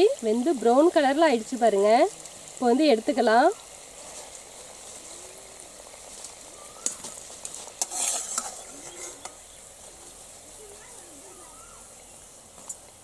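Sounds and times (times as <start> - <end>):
biscuits sizzling in hot oil: 0.0 - 13.0
steel skimmer clinking and scraping bowl: 7.7 - 9.4.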